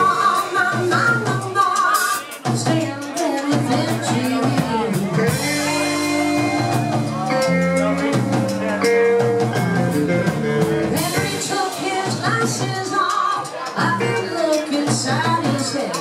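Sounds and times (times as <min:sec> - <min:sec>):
woman singing into microphone: 0:00.0 - 0:06.8, 0:10.9 - 0:16.0
drum kit beat: 0:00.0 - 0:16.0
electric guitar: 0:00.0 - 0:16.0.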